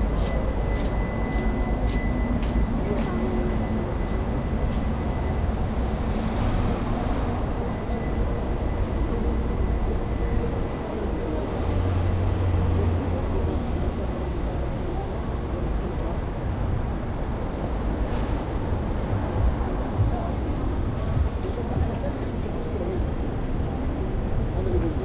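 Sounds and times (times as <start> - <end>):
traffic road noise: 0.0 - 25.0
deep engine hum: 18.7 - 22.6.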